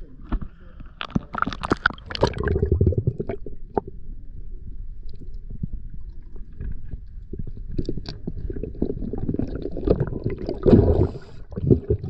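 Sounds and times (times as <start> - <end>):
muffled underwater rumble: 0.0 - 12.0
water splashing and gurgling: 1.0 - 3.9, 6.1 - 12.0.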